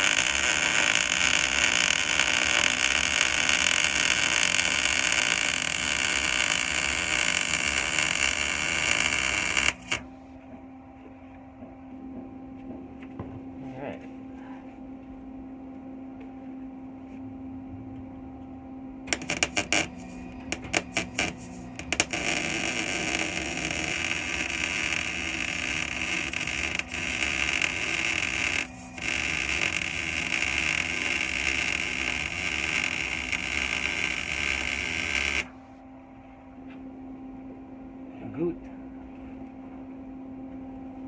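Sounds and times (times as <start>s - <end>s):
arc welder crackling and sizzling: 0.0s - 10.3s, 19.1s - 35.8s.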